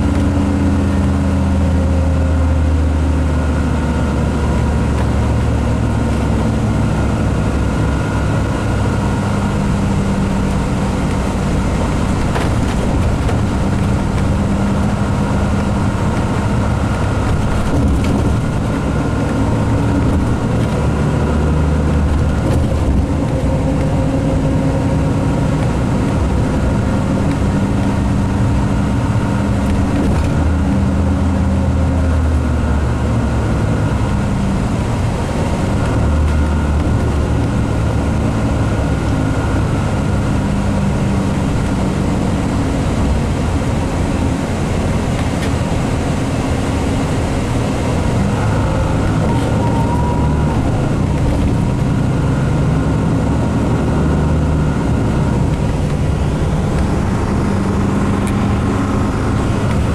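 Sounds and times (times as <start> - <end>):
coach engine running: 0.0 - 59.9
road and tyre noise: 0.0 - 59.9.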